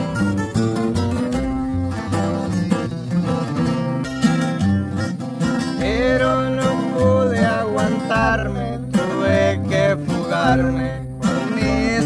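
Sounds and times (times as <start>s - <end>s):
acoustic guitars strumming: 0.0s - 12.0s
person singing: 5.8s - 12.0s.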